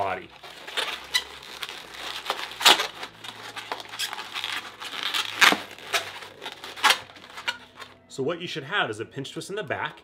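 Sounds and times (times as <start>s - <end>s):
balloon rubbing and squeaking: 0.4s - 8.0s.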